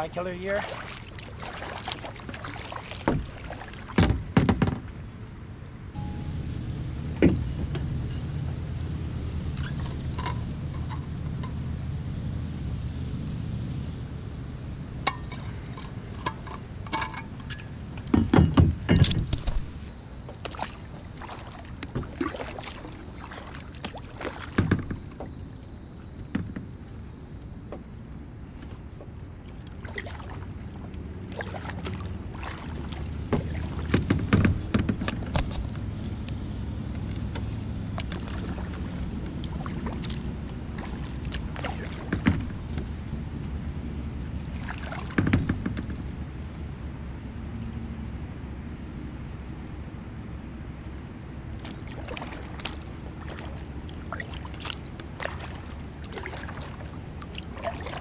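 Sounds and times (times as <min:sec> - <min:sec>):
paddle splashing in water: 0:00.0 - 0:05.0, 0:15.0 - 0:26.8, 0:28.6 - 0:35.7, 0:37.0 - 0:43.0, 0:43.6 - 0:45.7, 0:51.5 - 0:58.0
low rumble: 0:05.8 - 0:16.6.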